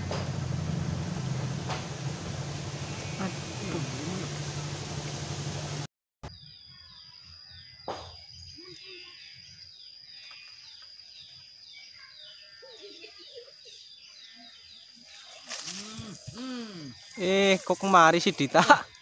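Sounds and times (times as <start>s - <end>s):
bird chirping: 2.5s - 4.6s, 6.3s - 19.0s.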